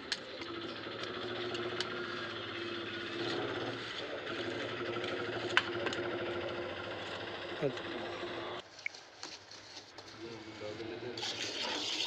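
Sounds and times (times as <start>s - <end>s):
low motor drone: 0.0s - 8.6s.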